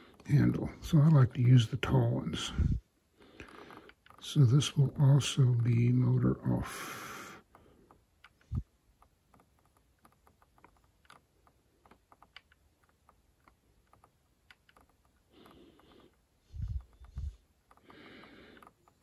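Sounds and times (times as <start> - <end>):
scroll wheel clicking: 3.4 - 6.0, 7.4 - 19.0.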